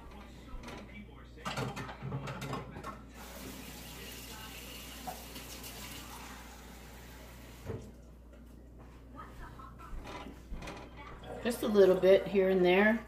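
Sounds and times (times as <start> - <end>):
faucet water running into cup: 3.2 - 7.9.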